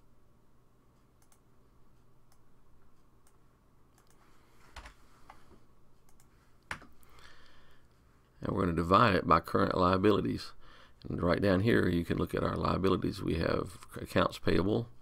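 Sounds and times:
computer keyboard clicks: 0:04.0 - 0:04.2.

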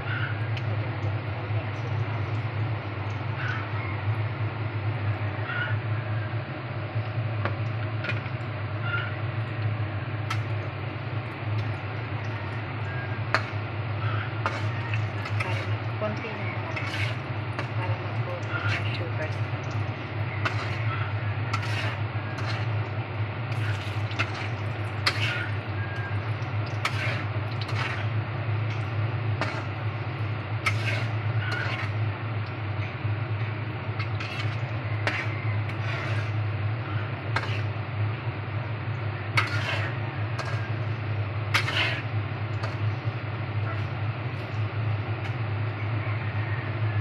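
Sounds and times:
low hum: 0:00.0 - 0:46.0
food deep-frying in oil: 0:00.0 - 0:47.0
metal spatula scraping a pan: 0:13.3 - 0:22.9, 0:23.5 - 0:32.0, 0:34.0 - 0:37.8, 0:39.3 - 0:44.6.

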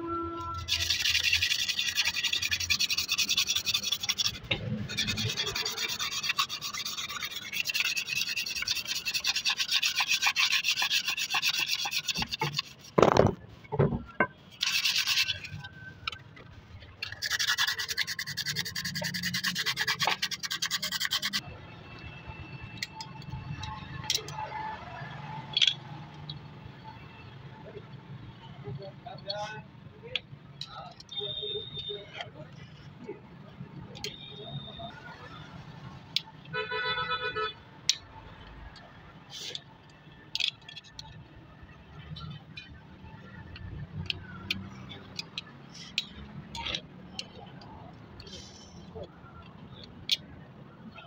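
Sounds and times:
hand scrubbing metal: 0:00.6 - 0:13.1, 0:14.6 - 0:15.7, 0:17.0 - 0:21.4.

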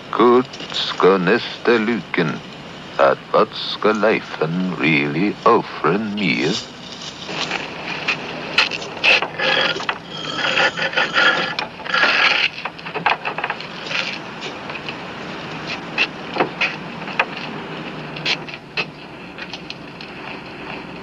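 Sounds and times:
knocks and rattles: 0:06.6 - 0:14.1.

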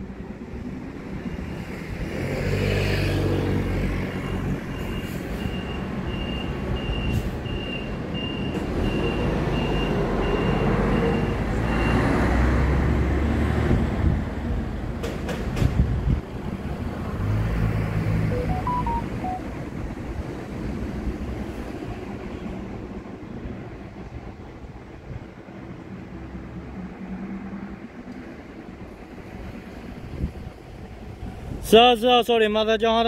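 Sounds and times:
high beep: 0:18.3 - 0:19.5.

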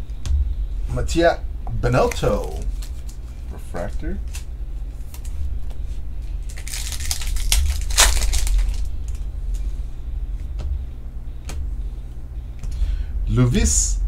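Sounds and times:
low hum: 0:00.0 - 0:14.0
card sleeves rustling: 0:02.0 - 0:09.6.

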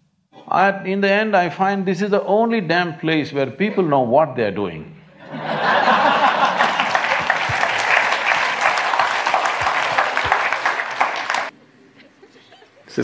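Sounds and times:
audience laughing: 0:05.1 - 0:13.0
audience applauding: 0:05.8 - 0:11.6.

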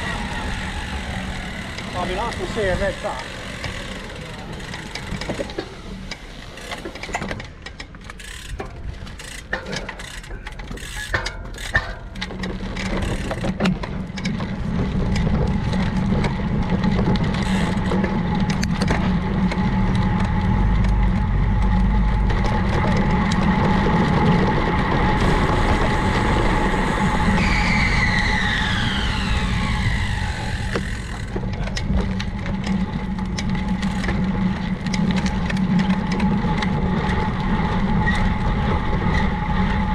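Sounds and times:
tyre and road rumble: 0:00.0 - 0:39.9
high whine falling in pitch: 0:19.1 - 0:31.4
clicks and crackles: 0:30.4 - 0:39.9.

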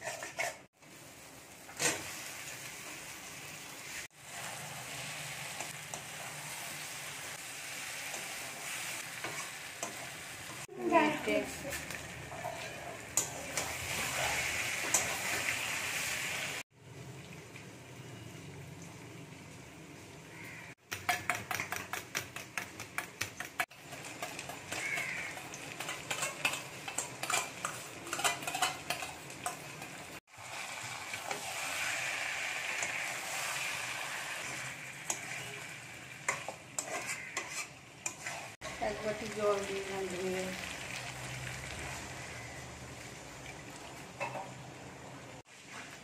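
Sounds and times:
metal spatula scraping a pan: 0:00.0 - 0:00.7, 0:03.8 - 0:16.1, 0:23.6 - 0:38.7
food sizzling in a pan: 0:00.0 - 0:20.8, 0:23.6 - 0:46.0.

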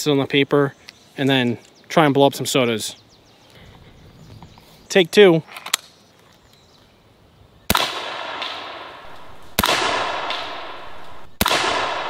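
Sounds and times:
air rifle shots with echo: 0:07.7 - 0:12.0.

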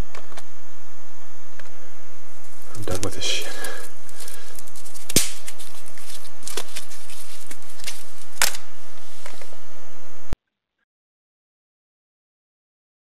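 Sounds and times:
loud steady hiss: 0:00.0 - 0:10.3
small crackles: 0:02.4 - 0:09.5
twigs snapping: 0:02.4 - 0:09.5.

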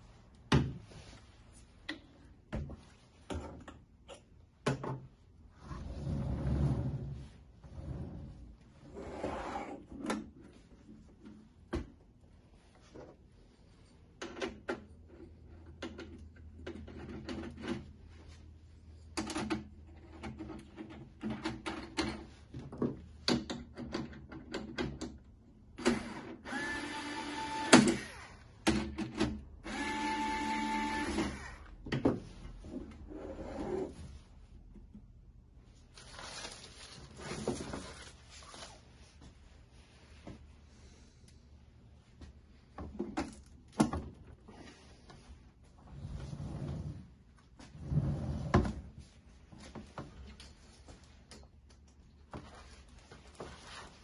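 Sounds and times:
plastic bag rustling: 0:35.9 - 0:39.2.

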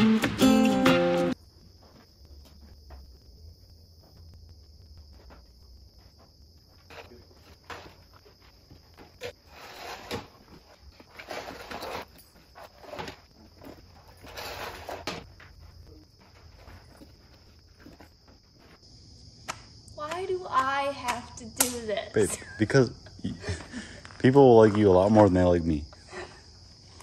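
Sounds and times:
footsteps on dirt floor: 0:01.4 - 0:18.9.

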